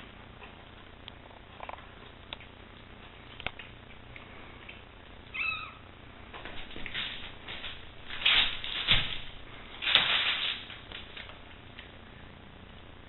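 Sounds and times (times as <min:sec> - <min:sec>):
kitten mewing: 0:05.3 - 0:05.8
rustling and scuffling: 0:06.3 - 0:12.0.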